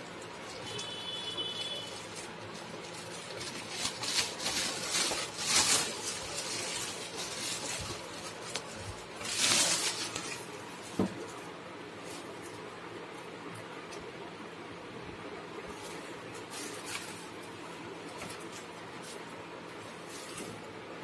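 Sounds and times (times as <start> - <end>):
plastic bag crinkling: 0.1 - 11.3.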